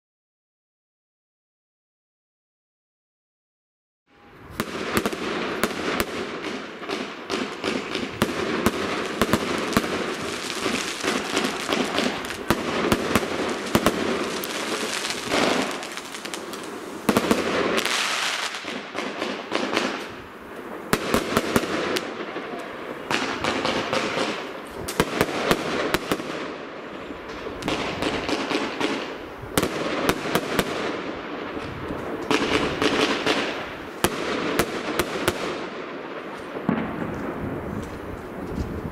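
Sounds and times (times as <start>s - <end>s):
fireworks crackling: 4.2s - 38.9s
firework shells bursting: 4.6s - 26.2s.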